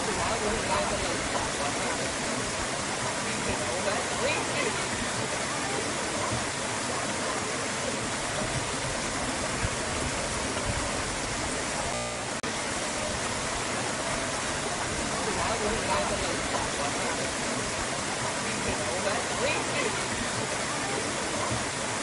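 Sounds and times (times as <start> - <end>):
creek water rushing over boulders: 0.0 - 22.0.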